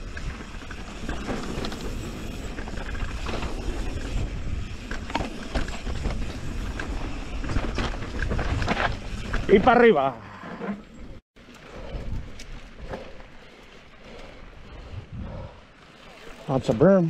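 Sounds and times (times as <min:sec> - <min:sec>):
bike clicks and rattles: 0:00.0 - 0:10.1
bike tyres rolling on dirt: 0:00.0 - 0:10.2, 0:10.9 - 0:17.0
wind rumbling on microphone: 0:14.0 - 0:15.8.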